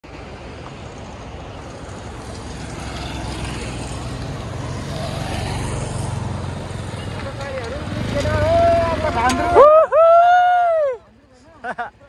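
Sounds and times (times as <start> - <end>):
motorcycle engine rumble: 1.4 - 10.6.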